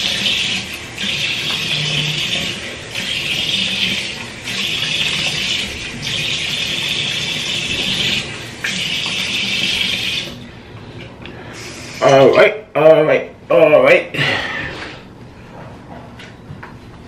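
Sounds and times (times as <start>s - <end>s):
tap water running into sink: 0.0s - 11.1s.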